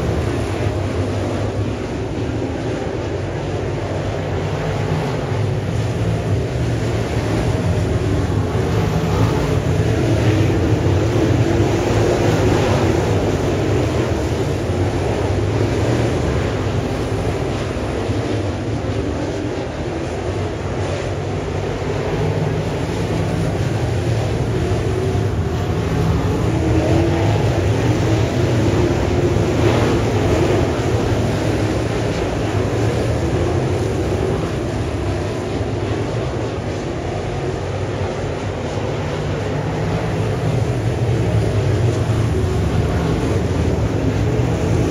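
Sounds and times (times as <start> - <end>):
race car engines droning: 0.0 - 44.9.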